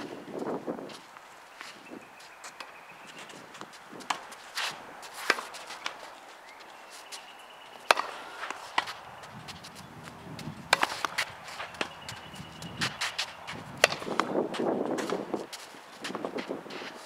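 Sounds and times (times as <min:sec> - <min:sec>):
tennis ball hitting racket: 0:02.5 - 0:06.2, 0:07.1 - 0:17.0
tennis ball bouncing on court: 0:03.5 - 0:04.4, 0:07.8 - 0:16.3.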